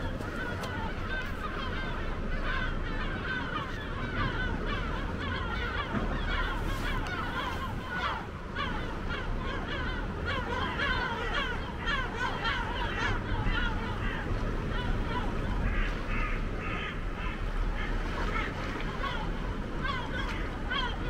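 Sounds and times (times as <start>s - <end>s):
flock of birds calling: 0.0s - 21.0s.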